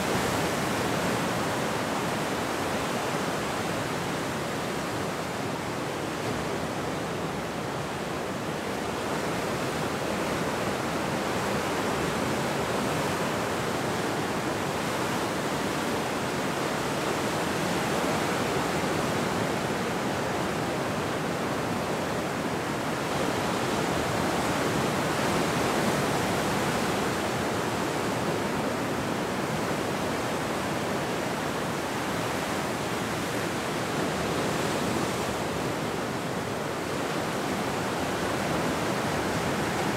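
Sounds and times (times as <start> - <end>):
ocean surf on rocky shore: 0.0 - 39.9.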